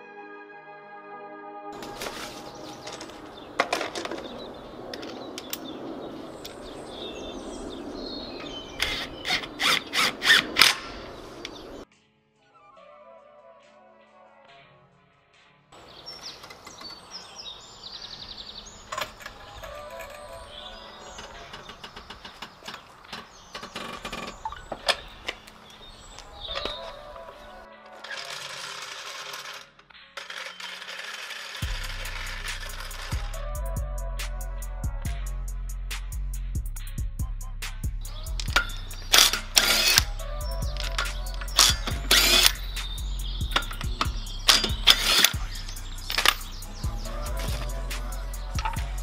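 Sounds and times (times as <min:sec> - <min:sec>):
birds chirping: 0:01.8 - 0:11.9, 0:15.8 - 0:27.8, 0:38.0 - 0:49.0
socket ratchet clicking: 0:38.4 - 0:46.7.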